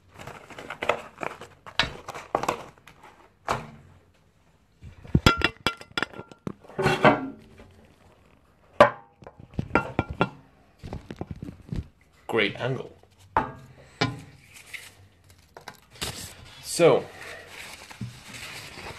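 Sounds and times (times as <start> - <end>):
objects knocking and clinking on table: 5.1 - 7.4, 8.8 - 11.8
rustling: 9.2 - 18.9.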